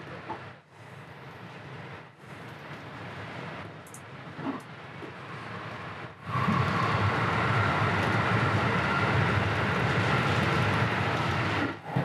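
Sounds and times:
train wheels rumbling: 2.3s - 12.0s.

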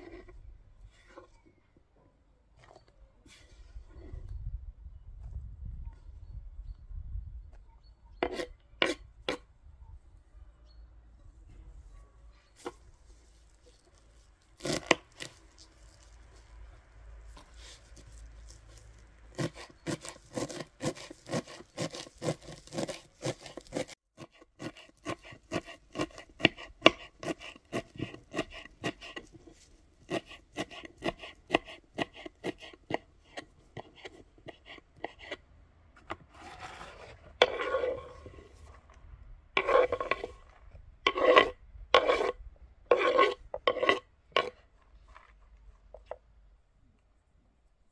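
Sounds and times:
blade scraping across board: 0.0s - 1.4s, 8.2s - 9.4s, 12.5s - 35.4s, 36.0s - 39.0s, 39.6s - 46.2s
knife chopping on wooden board: 19.3s - 35.4s.

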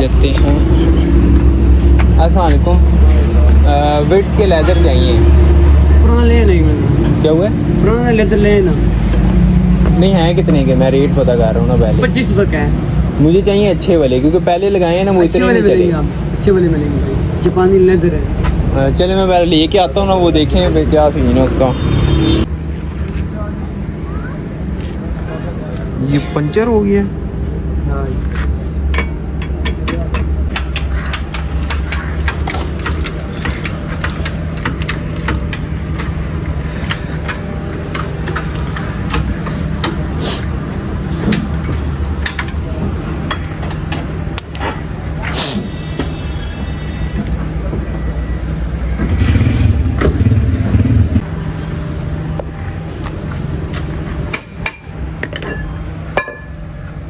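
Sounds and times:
vehicle engine running: 47.9s - 54.4s.

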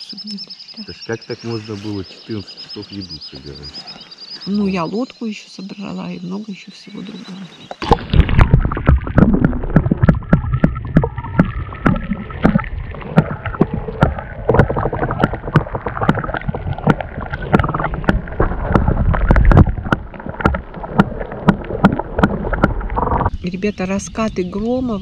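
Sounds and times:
paddle knocks and splashes: 7.8s - 23.3s.

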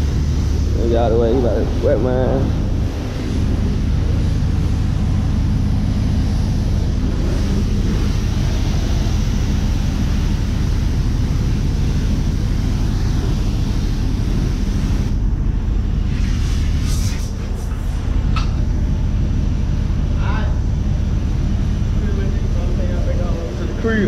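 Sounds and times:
pressure washer spraying water: 0.0s - 15.2s, 16.0s - 18.0s
low hum: 0.0s - 24.0s.

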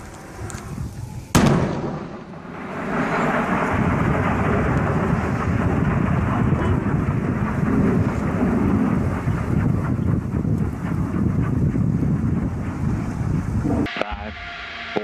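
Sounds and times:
rocket explosion rumble: 0.0s - 15.0s.

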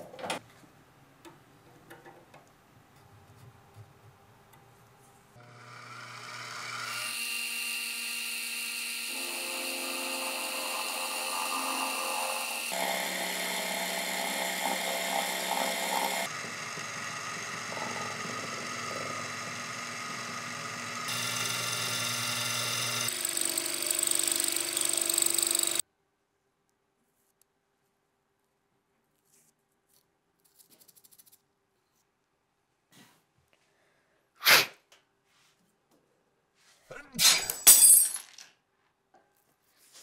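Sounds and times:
milling machine whine and cutting: 5.4s - 25.8s.

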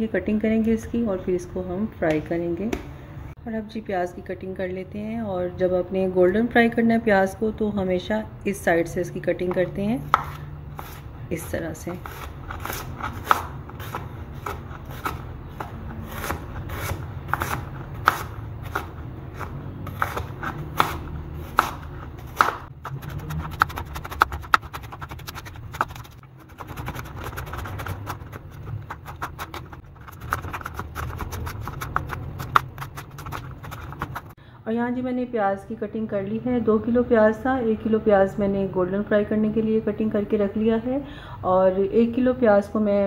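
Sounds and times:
knife slicing onions on a board: 9.5s - 34.4s.

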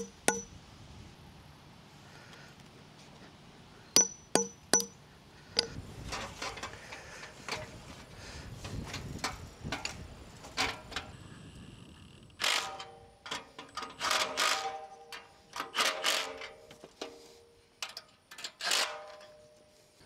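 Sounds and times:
metallic clanks of rails: 0.0s - 0.5s, 4.0s - 5.0s, 5.6s - 7.8s, 8.6s - 11.2s, 12.4s - 19.7s.

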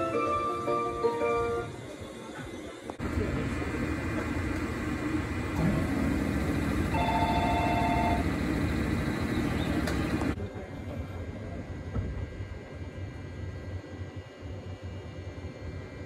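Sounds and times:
station departure melody: 0.0s - 2.0s, 5.3s - 10.4s
low hum of standing train: 0.0s - 16.0s.

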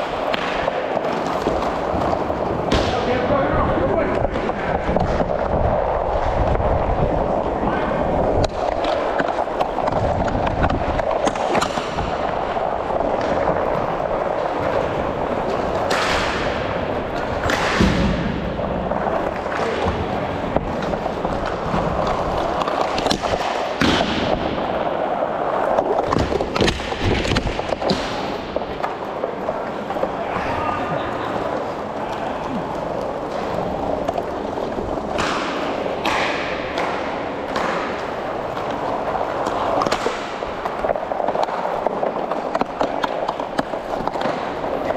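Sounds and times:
hockey sticks and puck clacking: 0.0s - 44.9s
skate wheels rolling on tiles: 0.0s - 44.9s.

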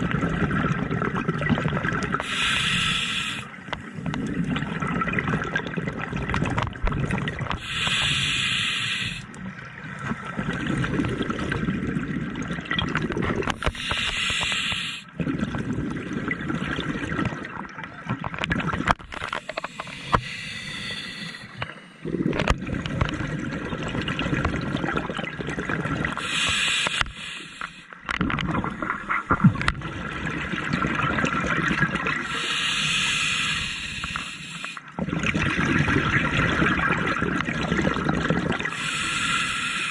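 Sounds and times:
exhaled air bubbling: 0.0s - 39.9s
regulator inhale hiss: 2.2s - 3.6s, 7.6s - 9.3s, 13.6s - 15.1s, 19.4s - 22.0s, 26.2s - 27.9s, 32.3s - 34.8s, 38.7s - 39.9s.

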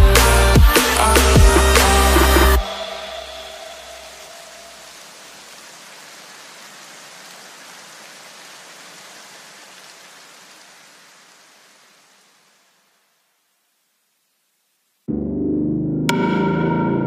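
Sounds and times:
white noise hiss: 2.7s - 15.1s.

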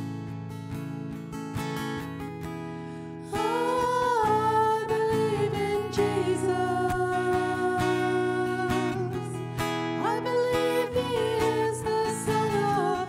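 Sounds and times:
acoustic guitar: 0.0s - 13.0s
women singing long notes: 3.3s - 13.0s.

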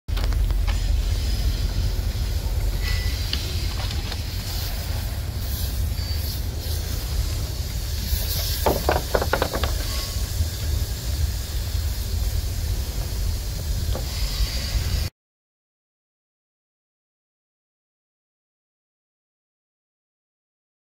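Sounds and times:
steady low rumble: 0.1s - 8.4s
hose nozzle spray hissing: 0.5s - 15.1s.

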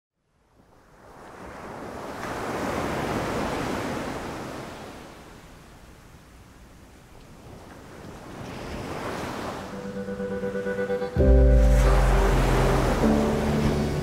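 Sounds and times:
rush of noise: 11.2s - 14.0s.

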